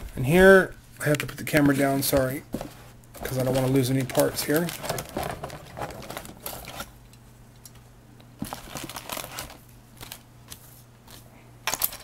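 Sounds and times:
box rustling: 1.6 - 6.9.

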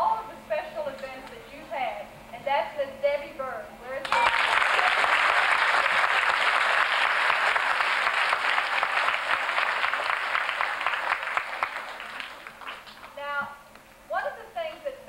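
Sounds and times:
audience applause: 4.0 - 13.2.

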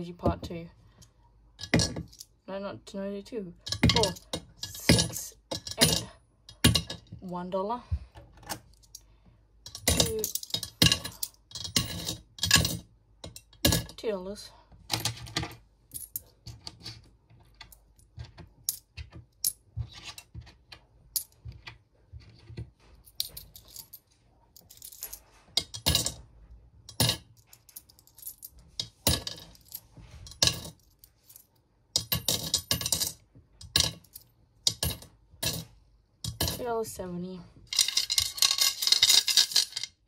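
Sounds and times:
coins clinking: 9.7 - 13.9, 24.6 - 26.2, 26.9 - 36.6, 37.7 - 40.0.

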